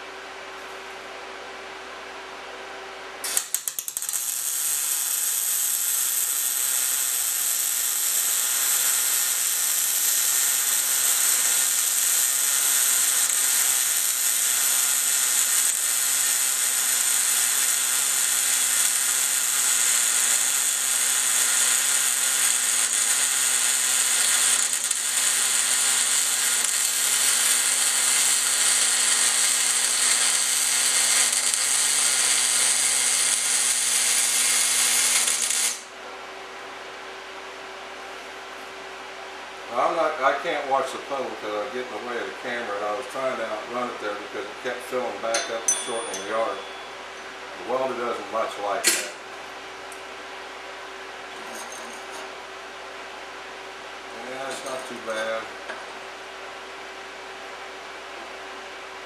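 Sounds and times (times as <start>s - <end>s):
welding arc crackle: 3.2s - 35.9s.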